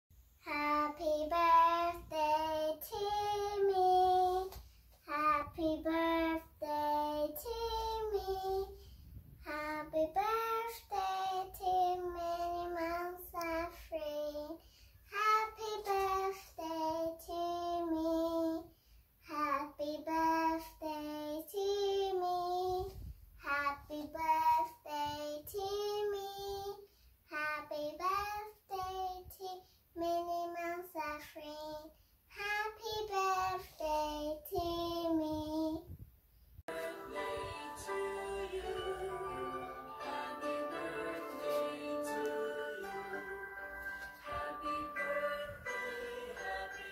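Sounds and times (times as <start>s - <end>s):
girl singing unaccompanied: 0.4s - 36.0s.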